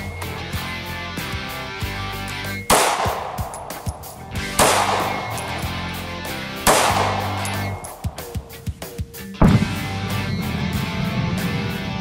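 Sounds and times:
background music: 0.0 - 12.0
pistol shots: 2.6 - 8.8.

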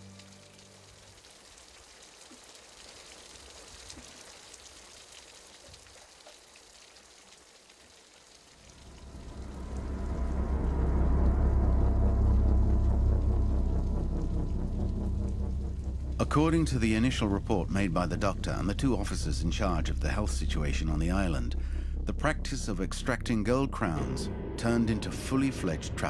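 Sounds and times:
steady rain falling: 0.0 - 26.0
loud deep rumble: 8.6 - 26.0.

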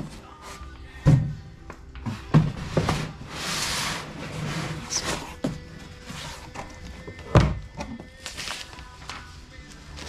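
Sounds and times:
background music: 0.0 - 10.0
cardboard scraping and rustling: 2.1 - 6.8.

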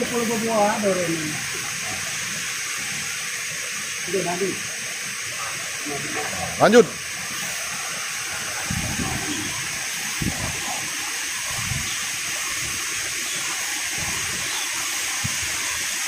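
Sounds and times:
waterfall and river rushing: 0.0 - 16.0.

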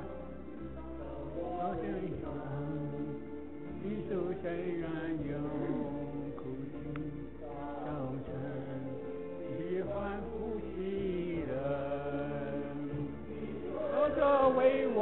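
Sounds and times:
person singing worship song: 0.0 - 15.0
sustained accompaniment notes: 0.0 - 15.0.

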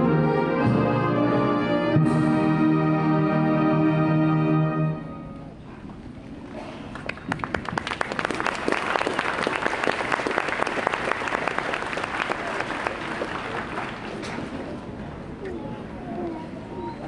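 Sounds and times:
crowd applauding: 6.9 - 14.3.

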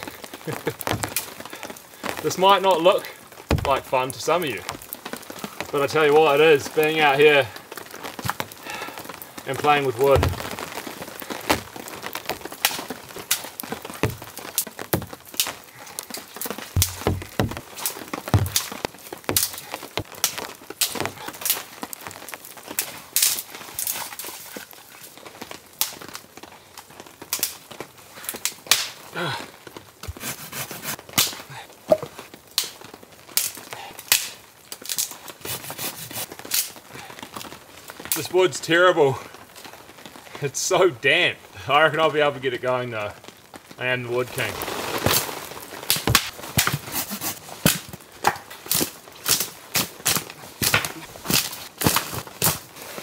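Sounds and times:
twigs snapping by hand: 0.6 - 1.8, 8.1 - 8.6, 11.5 - 24.7, 27.3 - 27.6, 28.4 - 29.0, 33.4 - 35.2, 45.8 - 52.7.

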